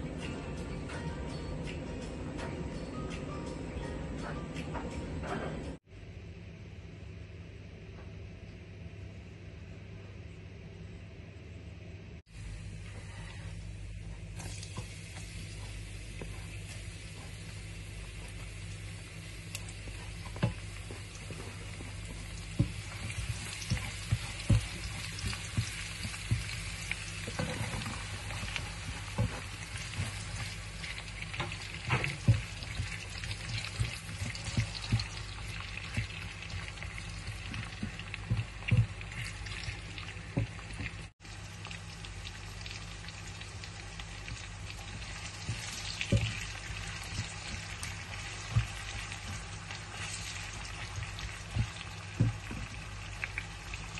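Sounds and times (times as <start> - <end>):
onion and garlic sizzling in pan: 12.3 - 53.9.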